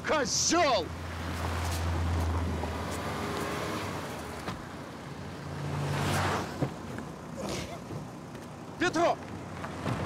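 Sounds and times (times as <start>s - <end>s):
road traffic noise: 0.0s - 10.0s
car engine humming: 0.3s - 10.0s.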